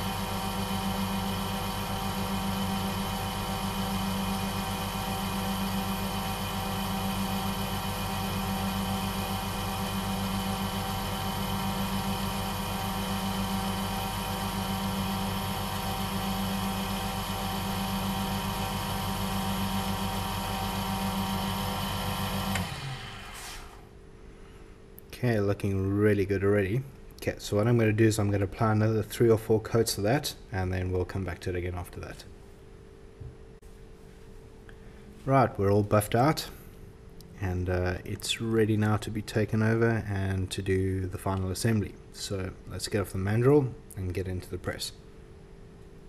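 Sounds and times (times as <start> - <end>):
wood lathe motor humming: 0.0 - 23.8.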